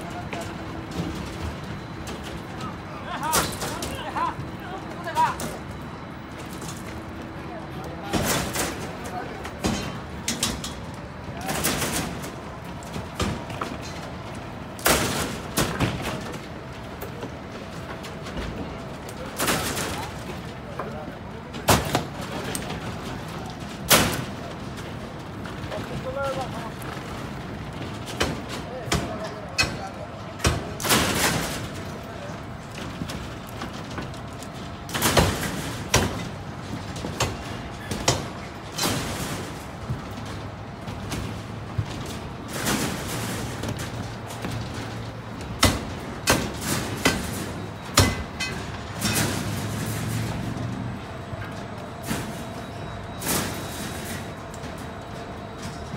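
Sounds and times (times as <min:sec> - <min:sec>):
sharp construction bangs: 0:08.0 - 0:16.4, 0:27.9 - 0:32.0, 0:34.7 - 0:55.8.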